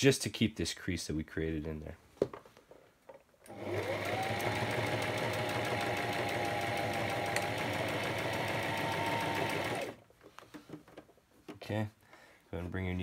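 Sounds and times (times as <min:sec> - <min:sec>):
sewing machine stitching: 0:03.5 - 0:10.0.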